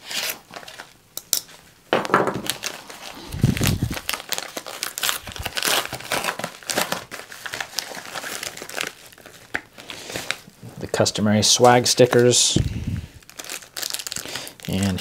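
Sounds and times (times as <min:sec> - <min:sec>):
paper envelope crinkling: 0:00.0 - 0:01.0, 0:02.4 - 0:10.5, 0:13.2 - 0:15.0
plastic bag crinkling: 0:02.0 - 0:10.5, 0:13.1 - 0:15.0.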